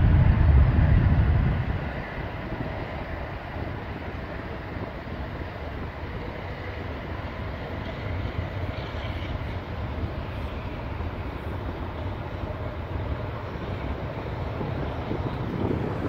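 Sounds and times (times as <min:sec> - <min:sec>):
distant jet engines roaring: 0:00.0 - 0:16.0.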